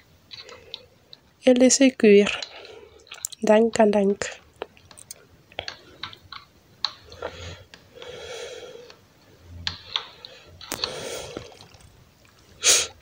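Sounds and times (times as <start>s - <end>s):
stew bubbling: 2.3s - 9.0s, 9.6s - 13.0s.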